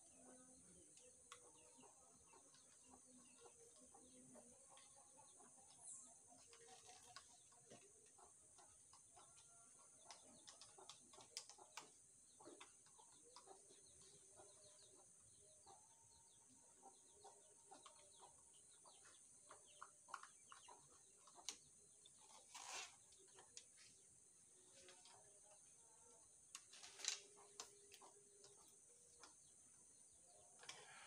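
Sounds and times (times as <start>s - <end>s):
faint bird chirps: 0.0s - 31.0s
small clicks and taps of tools: 6.4s - 14.2s, 19.4s - 21.6s
scraping rustle: 22.3s - 23.1s.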